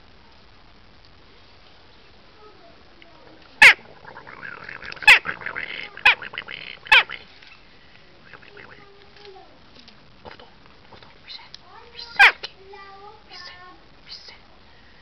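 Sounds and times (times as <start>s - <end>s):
quiet bird chattering: 3.6s - 7.3s
jackdaw calling: 3.6s - 7.4s.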